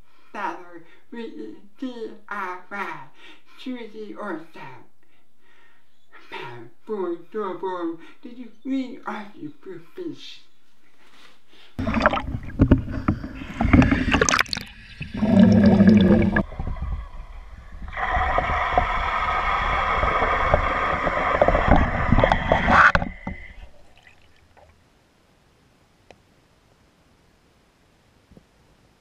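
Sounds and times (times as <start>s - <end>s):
muffled water sloshing: 11.8s - 24.8s
underwater humming drone: 11.8s - 25.6s.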